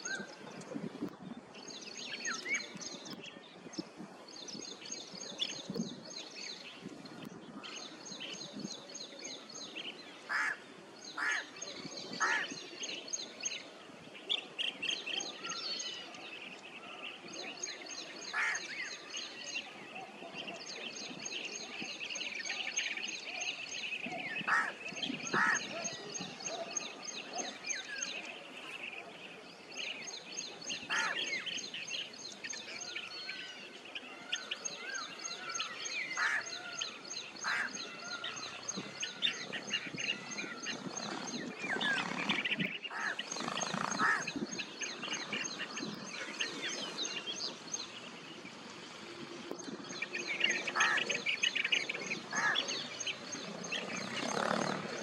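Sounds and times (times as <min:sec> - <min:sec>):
bee-eaters rolling calls: 0:12.2 - 0:12.6, 0:24.3 - 0:26.0, 0:30.8 - 0:31.6, 0:34.4 - 0:47.5, 0:50.0 - 0:55.0.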